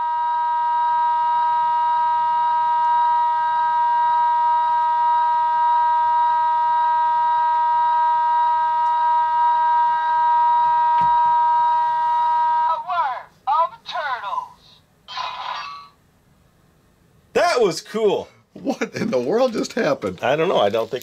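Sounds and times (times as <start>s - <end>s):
steady pitched tone: 0.0s - 13.2s.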